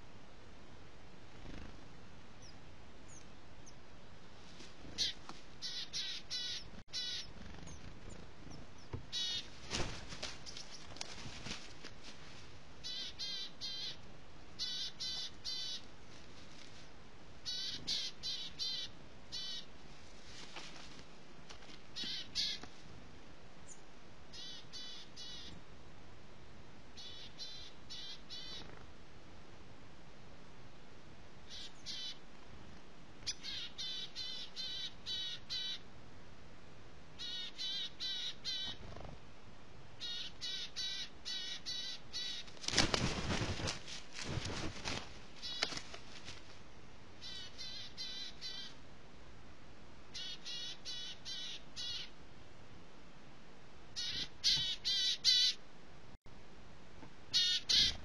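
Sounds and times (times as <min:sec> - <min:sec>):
rustling noise: 0:04.3 - 0:05.6, 0:07.3 - 0:12.7, 0:16.0 - 0:17.0, 0:19.9 - 0:21.9, 0:42.5 - 0:46.7
crow calling harshly: 0:54.0 - 0:55.6, 0:57.3 - 0:58.0.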